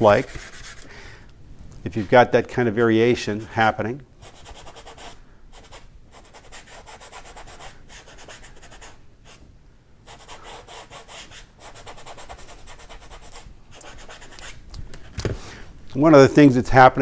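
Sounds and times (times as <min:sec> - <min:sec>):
paintbrush scrubbing on canvas: 0:00.0 - 0:00.9, 0:10.1 - 0:14.7.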